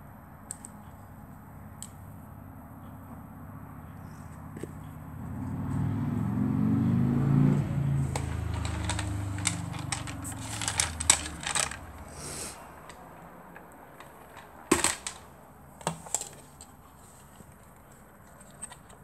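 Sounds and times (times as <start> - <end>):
plastic toy figures clicking: 8.1 - 12.1, 13.6 - 15.3.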